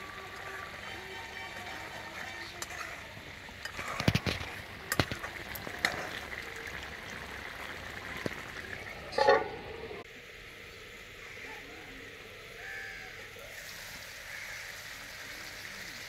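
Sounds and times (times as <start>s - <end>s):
curry bubbling in a pan: 0.0s - 10.2s, 13.1s - 16.0s
spatula scraping and tapping pan: 2.5s - 6.2s, 9.1s - 9.6s
ringing metal clang: 9.1s - 9.7s.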